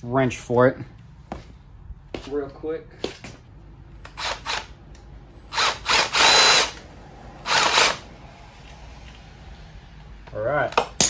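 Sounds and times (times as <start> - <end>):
cordless drill spurts: 5.5 - 6.8, 7.4 - 8.0.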